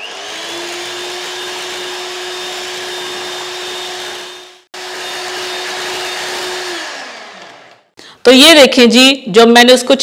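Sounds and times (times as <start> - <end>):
electric hand mixer whining: 0.0 - 8.0.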